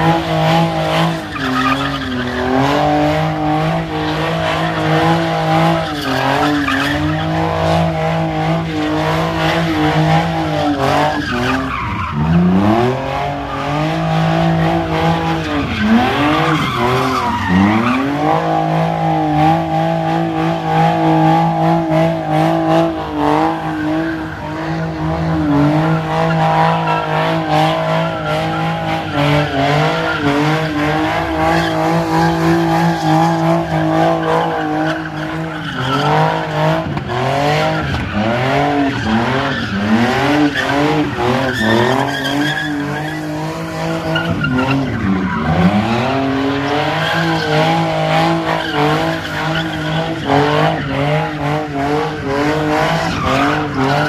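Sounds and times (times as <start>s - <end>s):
car engine revving: 0.0s - 54.0s
tyres screeching: 10.3s - 18.7s.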